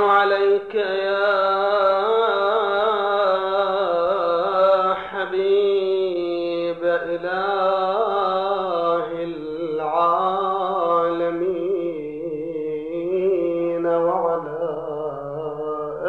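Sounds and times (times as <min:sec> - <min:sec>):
man chanting into microphone: 0:00.0 - 0:16.0.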